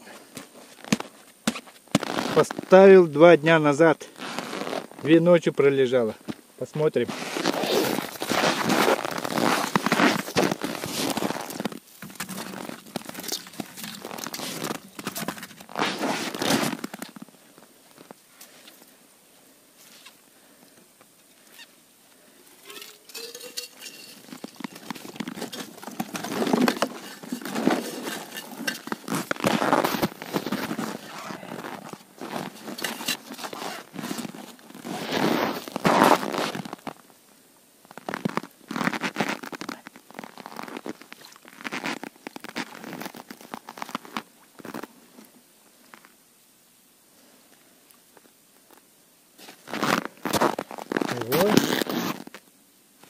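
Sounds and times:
ice scoop crunching and scraping: 7.1s - 17.2s, 22.6s - 36.9s, 49.5s - 52.3s.

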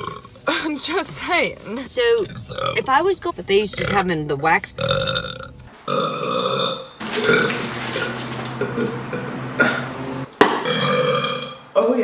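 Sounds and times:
woman burping: 0.0s - 0.7s, 2.1s - 3.0s, 3.6s - 4.1s, 8.6s - 9.9s.

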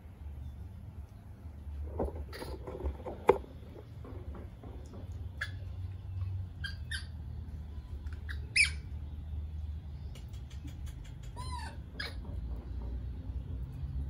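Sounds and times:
baby monkey squeaking: 5.4s - 5.8s, 6.6s - 7.4s, 8.1s - 9.0s, 10.9s - 12.3s.

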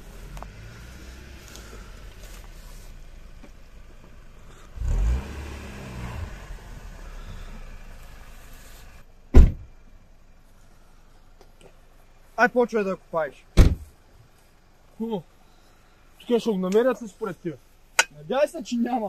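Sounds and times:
car engine revving: 0.0s - 9.1s
car door slamming: 9.3s - 9.7s, 13.6s - 13.9s.

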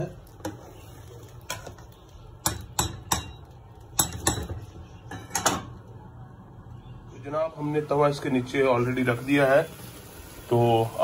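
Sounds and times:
metal spoon knocking pot: 2.4s - 5.7s.

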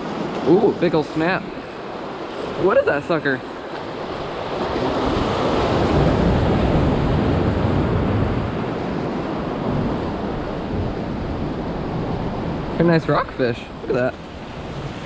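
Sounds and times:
surf washing over rocks: 0.0s - 15.0s
wind on microphone: 4.0s - 15.0s.

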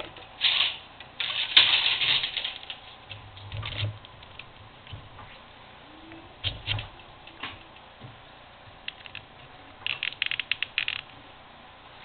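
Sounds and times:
plastic parts clicking: 8.9s - 11.1s.

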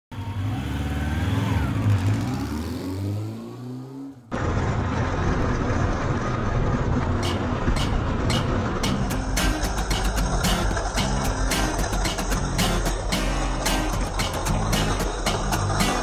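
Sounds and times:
engine-like revving logo sound: 0.3s - 16.0s
funk music with drum hits: 7.2s - 16.0s.

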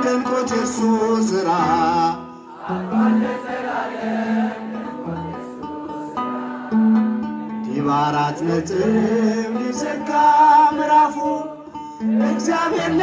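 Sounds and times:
man singing into microphone: 0.0s - 2.3s, 7.6s - 13.0s.

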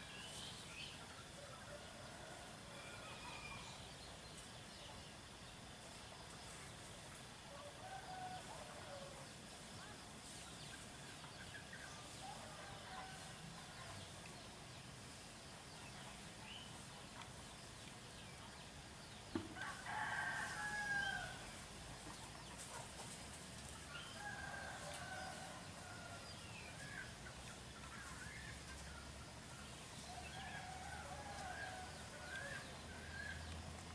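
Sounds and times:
roosters crowing: 1.2s - 4.0s, 7.6s - 9.3s, 19.5s - 21.6s, 23.9s - 27.1s, 28.8s - 33.5s.

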